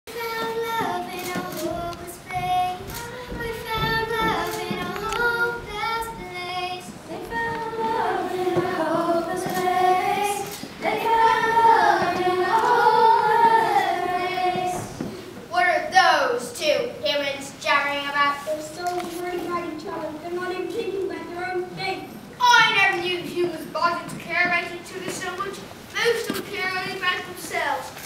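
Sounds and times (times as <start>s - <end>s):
children singing: 0.1s - 15.1s.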